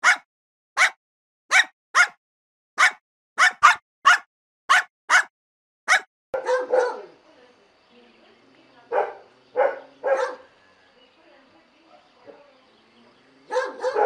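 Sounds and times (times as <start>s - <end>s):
dog barking: 0.0s - 0.2s, 0.8s - 2.2s, 2.8s - 5.3s, 5.9s - 7.2s, 8.9s - 10.5s, 11.9s - 12.5s, 13.5s - 14.0s.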